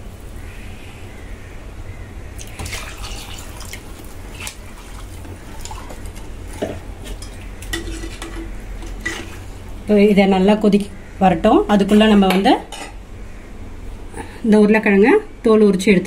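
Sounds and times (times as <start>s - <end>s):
water splashing into a pot: 2.4s - 9.2s.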